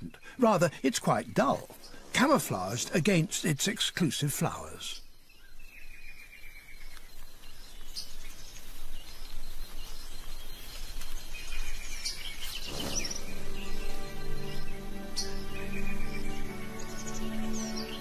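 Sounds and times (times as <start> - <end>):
bird chirps: 0.0 - 18.0
soft music with held notes: 12.8 - 18.0.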